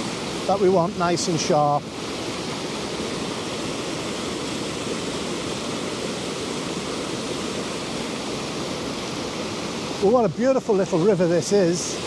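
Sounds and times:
water rushing over rocks: 0.0 - 12.0.

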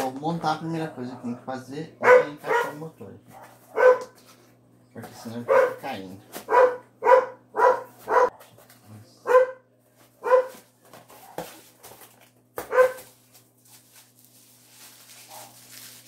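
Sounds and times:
dog barking: 1.0 - 1.4, 2.0 - 4.2, 5.4 - 8.4, 9.2 - 9.6, 10.2 - 10.6, 12.6 - 13.1, 15.3 - 15.5
rustling of packaging: 9.9 - 16.0.

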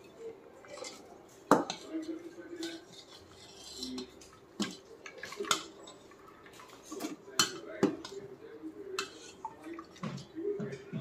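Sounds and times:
utensil clanking against metal pot: 0.7 - 8.3
utensil scraping in pot: 1.7 - 8.2, 8.9 - 9.5.

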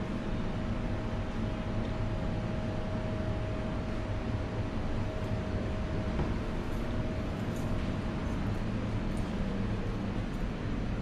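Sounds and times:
low room rumble: 0.0 - 11.0.

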